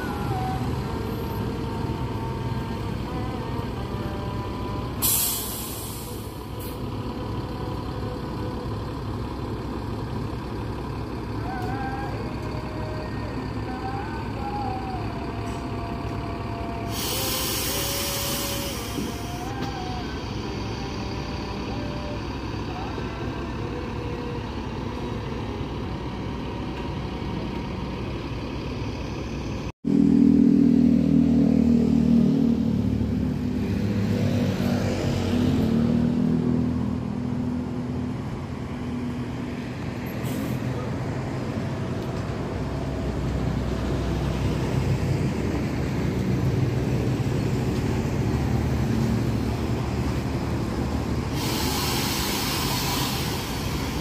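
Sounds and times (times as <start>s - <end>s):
diesel coach engines droning: 0.0s - 54.0s
air brake hiss: 5.0s - 6.8s, 16.9s - 19.7s, 40.1s - 40.7s, 51.1s - 54.0s.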